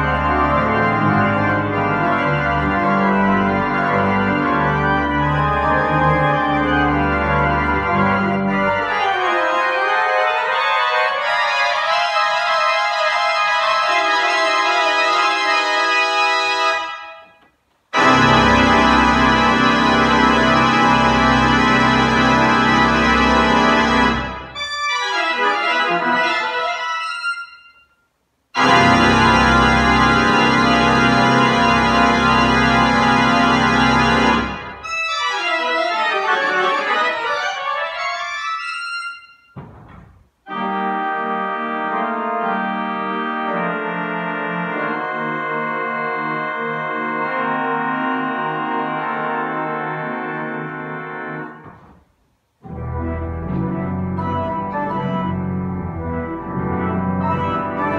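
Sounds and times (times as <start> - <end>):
pipe organ playing chords: 0.0 - 17.3, 17.9 - 27.8, 28.6 - 51.9, 52.6 - 57.9.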